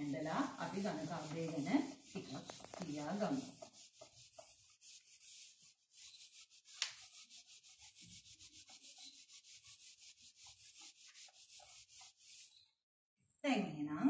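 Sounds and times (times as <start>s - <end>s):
marker writing on whiteboard: 0.0s - 12.6s
marker tap: 2.3s - 3.4s, 6.8s - 7.0s.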